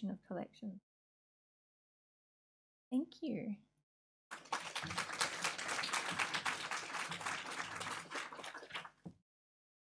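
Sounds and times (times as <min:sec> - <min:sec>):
audience applauding: 0:04.3 - 0:09.1.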